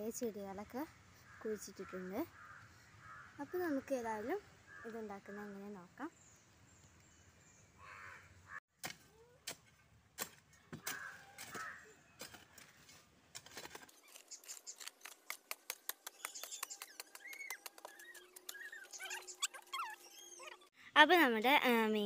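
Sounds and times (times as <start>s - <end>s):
birds chirping: 0.8s - 8.6s, 15.9s - 20.7s
metal hoe chopping dry soil: 8.8s - 16.1s.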